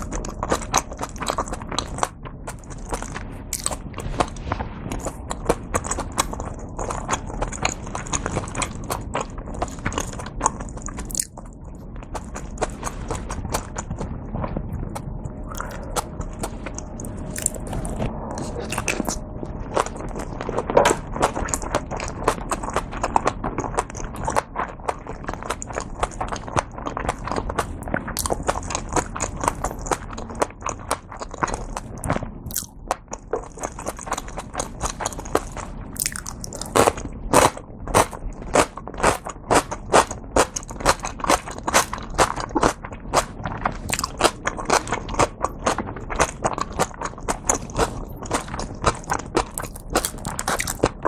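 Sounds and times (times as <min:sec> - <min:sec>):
chewing and biting food: 0:00.0 - 0:51.0
wet mouth clicks: 0:15.5 - 0:16.1, 0:18.4 - 0:19.2.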